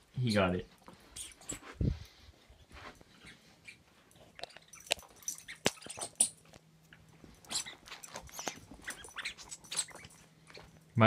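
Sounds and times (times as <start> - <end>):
dog mouthing a toy: 3.6 - 6.4, 7.4 - 10.2
clicks and rustles: 4.1 - 10.9.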